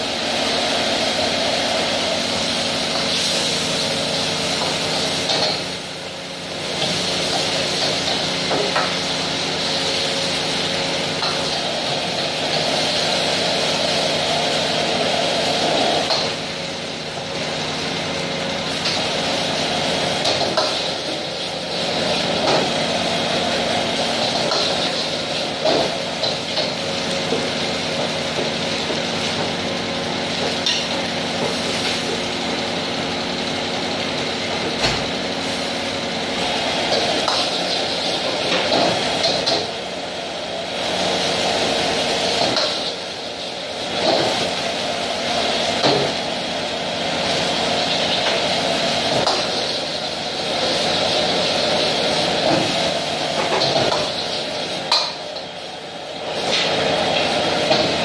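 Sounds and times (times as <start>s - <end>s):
extractor hood fan humming: 0.0s - 58.0s
gas wok burner roaring: 0.0s - 58.0s.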